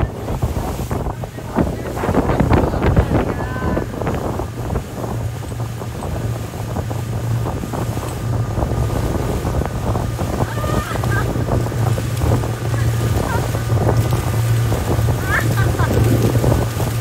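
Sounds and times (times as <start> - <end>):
motorboat engine running: 0.0 - 17.0
water rushing and splashing: 0.0 - 17.0
wind buffeting microphone: 0.0 - 17.0.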